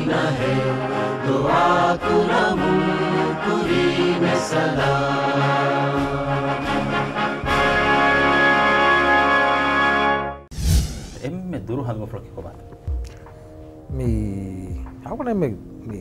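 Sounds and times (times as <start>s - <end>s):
choir singing held notes: 0.0s - 8.2s.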